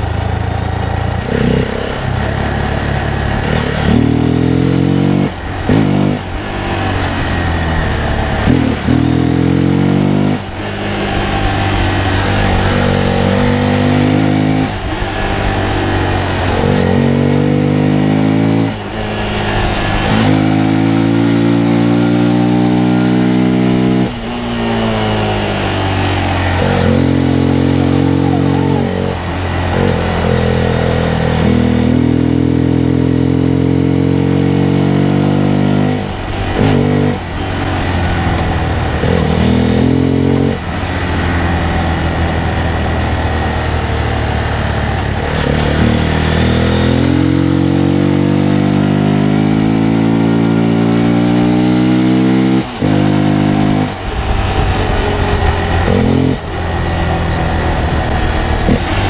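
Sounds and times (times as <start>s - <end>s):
motorcycle engine revving through gears: 0.0s - 59.0s.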